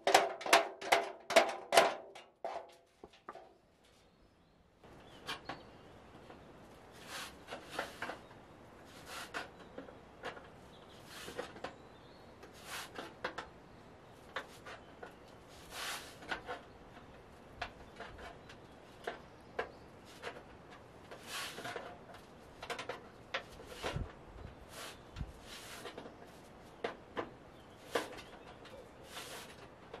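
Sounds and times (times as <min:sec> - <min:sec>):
blade scraping wood: 0:06.9 - 0:09.7, 0:12.5 - 0:13.2, 0:15.5 - 0:16.8, 0:21.0 - 0:26.5, 0:27.8 - 0:29.7.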